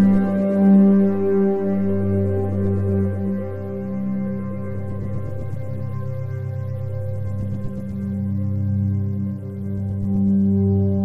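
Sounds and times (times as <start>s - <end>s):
ambient music with held notes: 0.0s - 11.0s
deep low drone: 0.0s - 11.0s.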